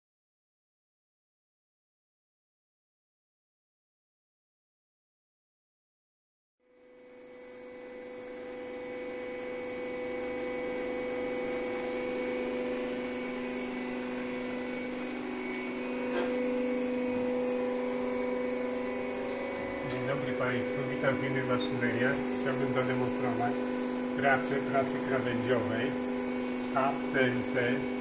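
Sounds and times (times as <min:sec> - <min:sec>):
hydraulic pump motor humming: 0:06.7 - 0:28.0.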